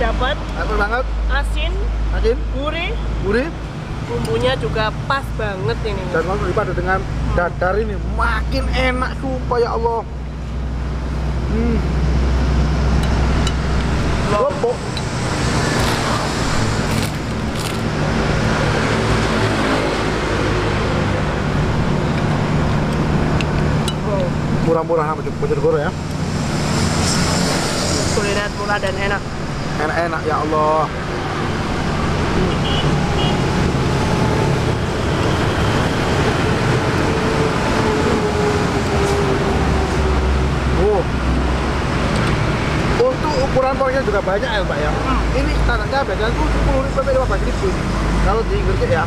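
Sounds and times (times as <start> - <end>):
road traffic hum: 0.0 - 49.0
rumble of passing vehicles: 0.0 - 49.0
crackers crunching: 15.6 - 18.1.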